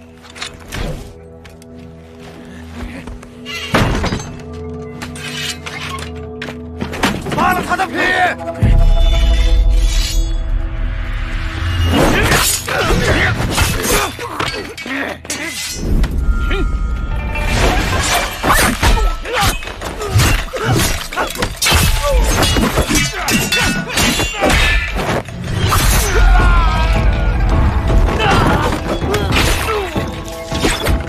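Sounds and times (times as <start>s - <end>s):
dramatic action music: 2.4s - 31.0s
sword blades clashing: 12.0s - 15.9s, 17.6s - 26.2s.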